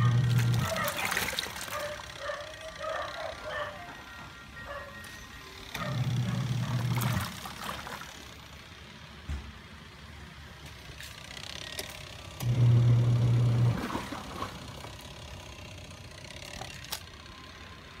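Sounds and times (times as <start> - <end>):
washing machine motor hum: 0.0 - 18.0.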